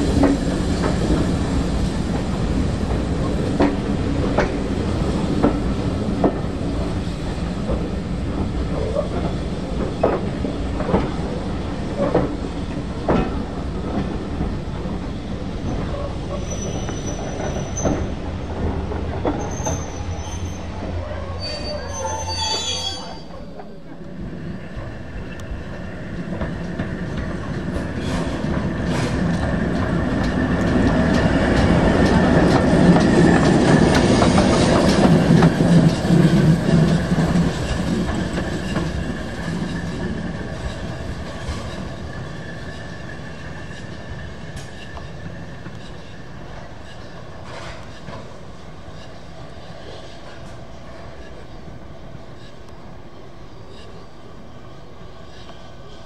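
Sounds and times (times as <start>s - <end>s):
steam locomotive running slowly: 0.0s - 56.0s
wheels clacking over rail joints: 24.8s - 49.2s.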